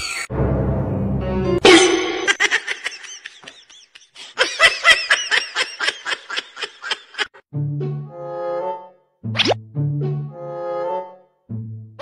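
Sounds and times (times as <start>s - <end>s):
high-pitched giggling: 1.7s - 7.4s.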